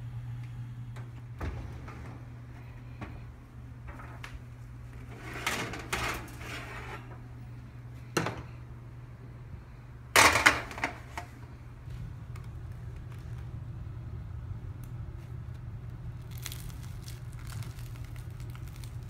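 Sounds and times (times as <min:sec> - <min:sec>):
low hum: 0:00.0 - 0:19.0
metal tray clattering: 0:05.1 - 0:07.1
bread crust crackling: 0:14.8 - 0:19.0.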